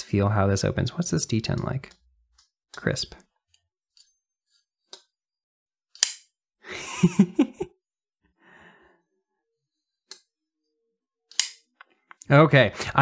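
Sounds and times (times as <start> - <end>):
knife blade clicking open: 5.9 - 6.3, 11.3 - 11.6.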